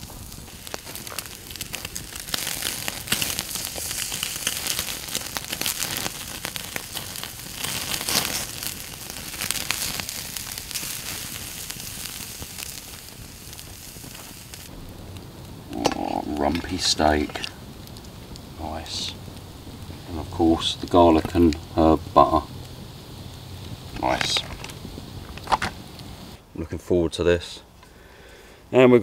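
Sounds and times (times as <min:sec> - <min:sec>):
steak sizzling on grill: 0:00.0 - 0:26.4
campfire crackling: 0:00.0 - 0:28.9.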